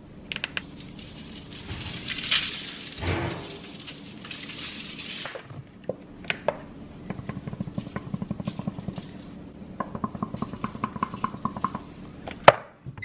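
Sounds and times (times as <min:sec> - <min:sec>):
seasoning granules rattling: 0:00.3 - 0:05.7, 0:07.1 - 0:12.0.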